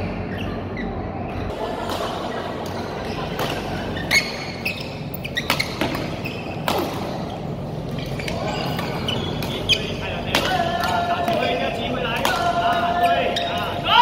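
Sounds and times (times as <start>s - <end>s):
steady background hum: 0.0s - 14.0s
shoe squeaks on court floor: 0.2s - 1.5s, 2.8s - 10.2s, 13.0s - 13.8s
rackets striking shuttlecock: 1.8s - 13.8s.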